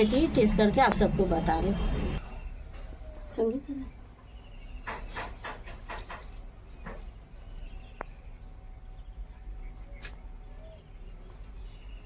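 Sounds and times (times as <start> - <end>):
faint bird chirps: 6.7 - 12.0.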